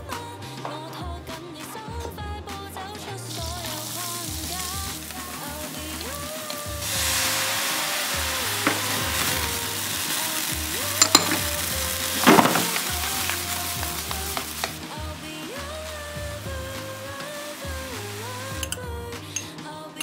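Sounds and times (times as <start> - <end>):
onion and mushrooms sizzling in pan: 3.2 - 19.4
burst of hiss: 3.6 - 18.6.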